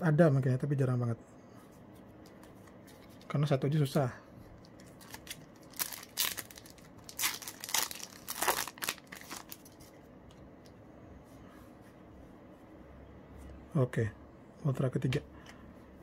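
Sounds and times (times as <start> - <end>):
foil wrapper tearing and crinkling: 4.8 - 9.8.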